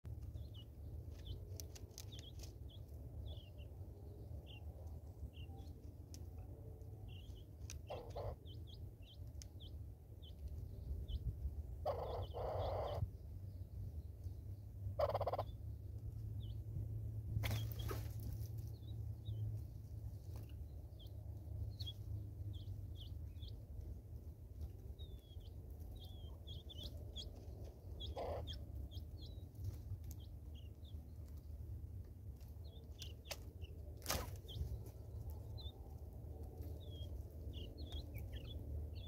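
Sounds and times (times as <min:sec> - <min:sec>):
harsh bird calls: 0:11.8 - 0:13.1, 0:25.0 - 0:29.4.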